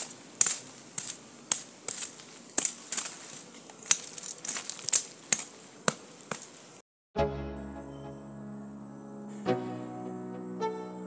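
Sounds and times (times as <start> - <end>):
dry leaves and stick crunching: 0.0 - 6.8.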